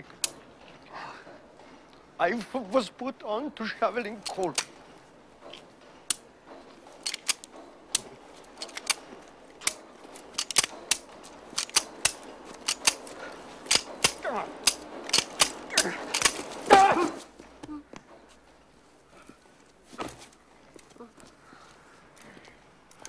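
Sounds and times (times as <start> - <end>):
pistol action being worked: 4.2 - 4.8, 7.0 - 16.6
pistol trigger clicking: 10.4 - 16.4.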